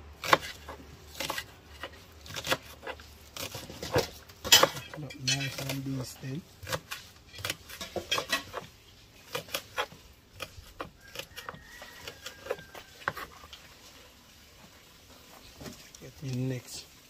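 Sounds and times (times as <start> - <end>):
knife chopping on wooden board: 0.2 - 5.0.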